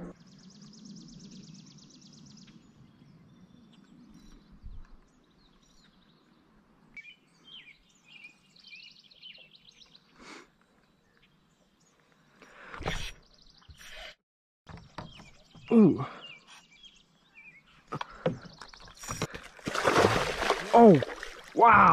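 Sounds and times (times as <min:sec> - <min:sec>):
songbird trill: 0:00.2 - 0:12.3, 0:14.7 - 0:19.2
bird chirps: 0:14.9 - 0:19.2.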